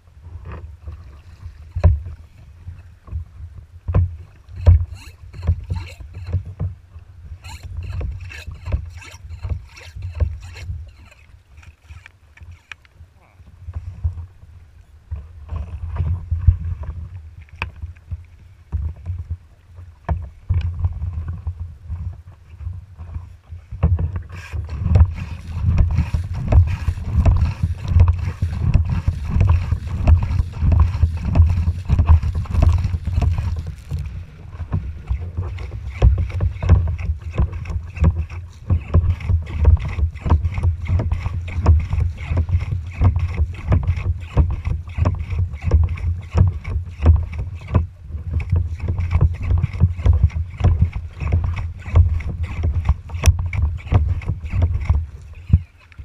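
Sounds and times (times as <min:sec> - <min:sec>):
water slapping against hull: 0:00.3 - 0:12.8, 0:15.1 - 0:56.0
wind buffeting microphone: 0:13.0 - 0:56.0.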